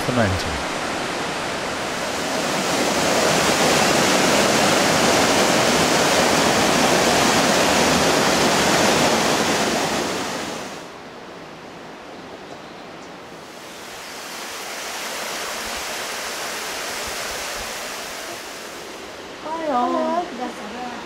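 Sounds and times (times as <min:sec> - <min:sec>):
water rushing over boulders: 0:00.0 - 0:10.9, 0:13.4 - 0:20.8.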